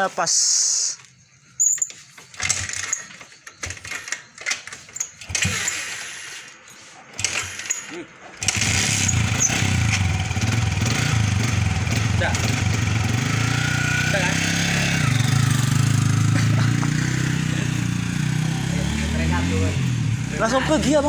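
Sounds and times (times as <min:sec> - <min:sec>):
engine starter cranking: 0:01.6 - 0:13.1
motorcycle engine running: 0:08.4 - 0:21.0.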